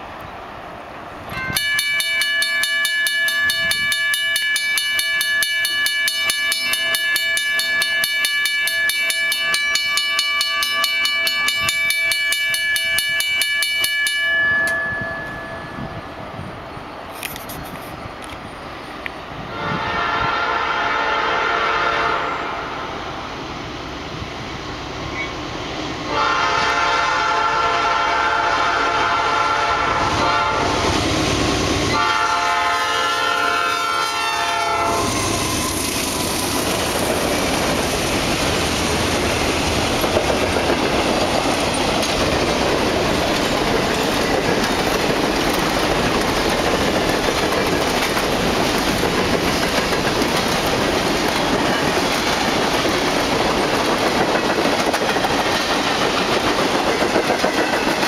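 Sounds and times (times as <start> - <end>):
freight train wheels rumbling: 0.0 - 58.0
locomotive air horn blasts: 19.5 - 22.8, 26.1 - 30.8, 31.9 - 35.8.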